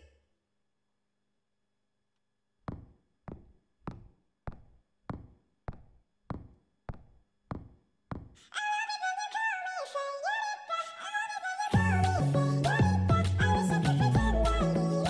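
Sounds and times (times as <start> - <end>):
music with singing: 8.6 - 15.0.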